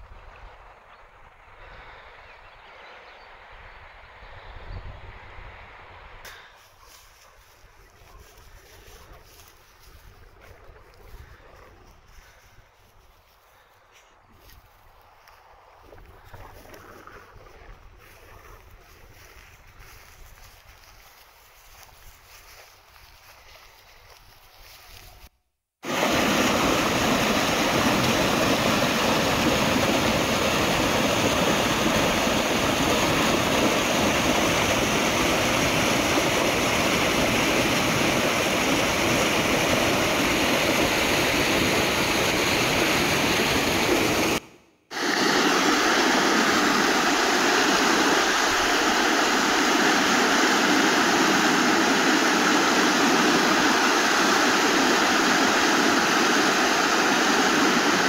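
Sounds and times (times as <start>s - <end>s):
creek rushing over rocks: 25.8s - 58.0s.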